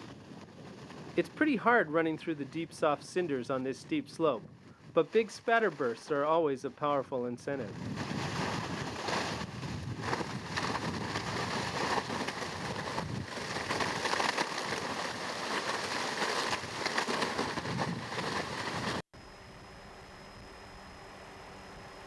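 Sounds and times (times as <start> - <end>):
lava vent rushing and crackling: 0.0 - 19.1.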